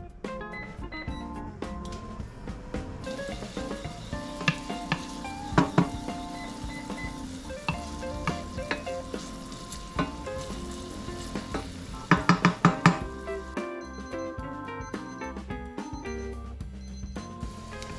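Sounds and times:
light background music: 0:00.0 - 0:17.9
garlic sizzling in oil: 0:03.0 - 0:13.6, 0:17.4 - 0:17.9
spatula knocking against pan: 0:11.4 - 0:13.1.

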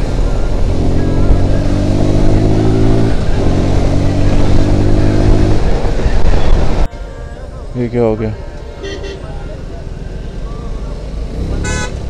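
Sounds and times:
motorcycle engine accelerating: 0:00.0 - 0:06.9, 0:09.6 - 0:12.0
wind rumble on microphone: 0:00.4 - 0:06.9.

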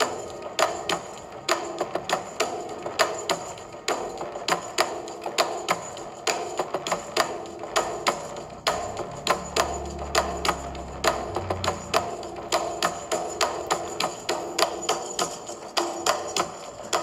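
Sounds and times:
steady pitched notes: 0:07.6 - 0:14.0
low bass: 0:08.2 - 0:12.8.

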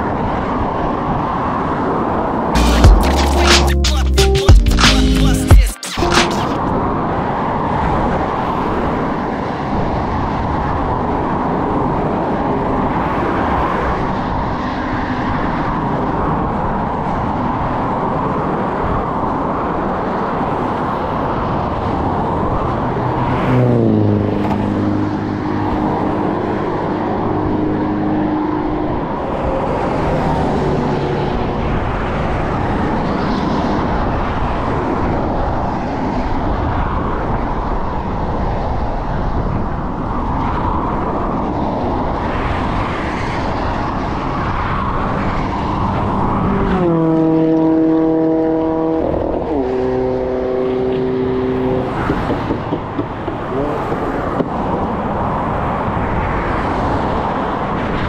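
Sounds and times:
highway traffic: 0:00.0 - 0:58.0
vehicle passing close by: 0:06.5 - 0:58.0
wind noise: 0:06.6 - 0:46.9.

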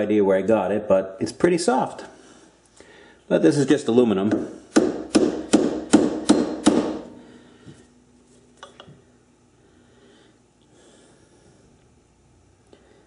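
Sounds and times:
hammer striking chisel on metal: 0:04.3 - 0:07.1.

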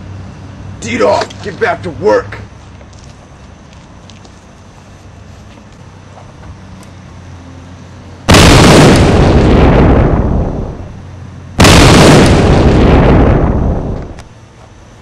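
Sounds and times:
explosion booms: 0:08.3 - 0:10.9, 0:11.6 - 0:14.2.

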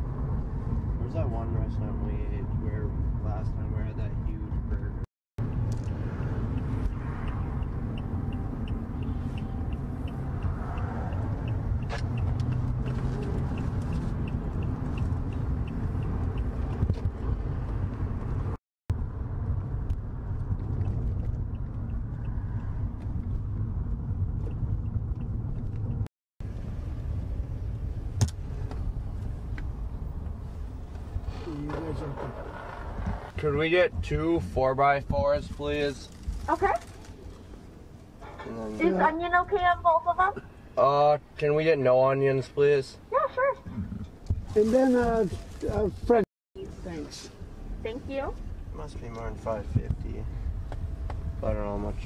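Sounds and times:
car road and engine rumble: 0:00.0 - 0:52.0
turn signal ticking: 0:05.4 - 0:18.5, 0:19.4 - 0:26.1, 0:47.8 - 0:51.5.

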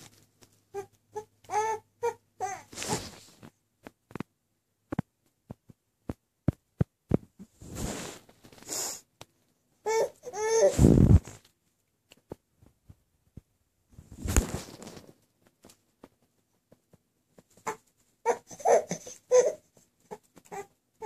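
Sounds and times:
baby whiny cry: 0:00.7 - 0:02.9, 0:09.8 - 0:10.9, 0:17.6 - 0:20.7
baby grunting and fussing: 0:00.7 - 0:03.2, 0:09.8 - 0:11.2, 0:17.6 - 0:20.7.

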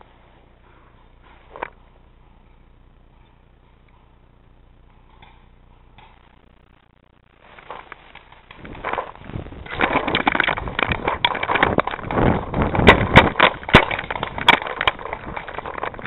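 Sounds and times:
sharp loud cracks: 0:07.8 - 0:16.0.

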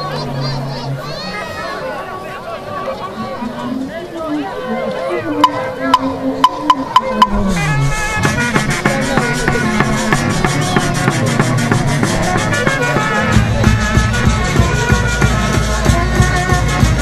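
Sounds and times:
wind instruments playing melody: 0:02.9 - 0:17.0
sharp percussion strokes: 0:05.4 - 0:17.0
steady drum beat: 0:05.4 - 0:17.0.

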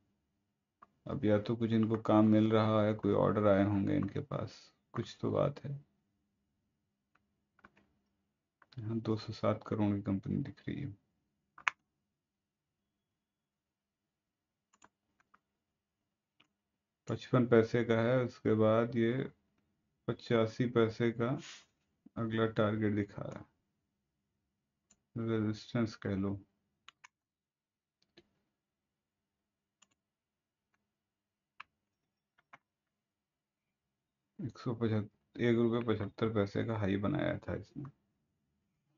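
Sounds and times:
mouse and keyboard clicks: 0:11.6 - 0:11.8.

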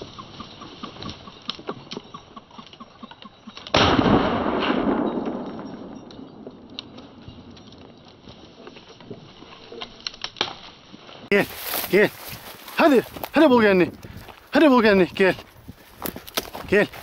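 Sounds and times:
shotgun shot: 0:03.7 - 0:05.9.

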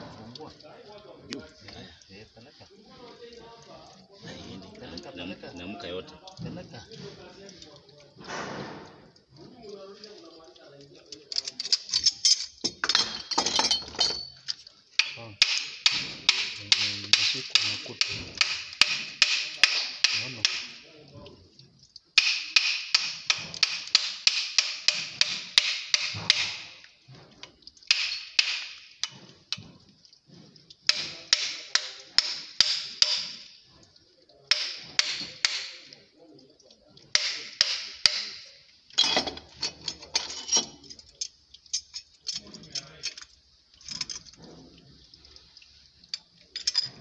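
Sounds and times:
hand tool tapping metal pipe: 0:15.0 - 0:20.8, 0:22.2 - 0:26.8, 0:27.9 - 0:29.6, 0:30.9 - 0:33.6, 0:34.5 - 0:36.0, 0:37.1 - 0:40.6.

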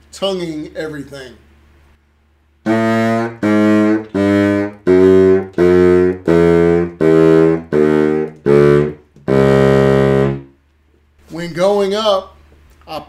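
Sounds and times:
baritone saxophone descending scale: 0:02.6 - 0:10.6.

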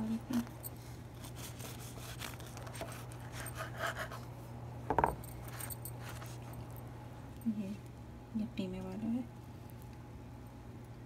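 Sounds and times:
bread knife sawing through bun: 0:01.2 - 0:04.3.

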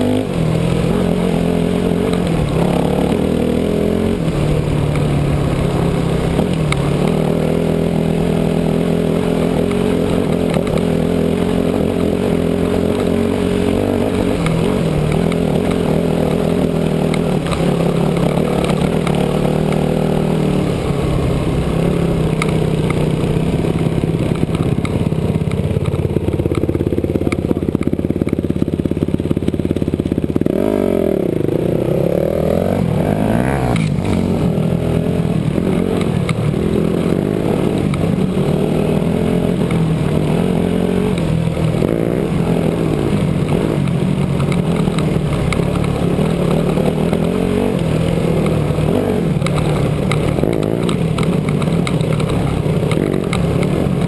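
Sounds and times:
dirt bike engine revving: 0:00.0 - 0:54.0
stones clattering under tyres: 0:11.8 - 0:20.8, 0:35.4 - 0:54.0.

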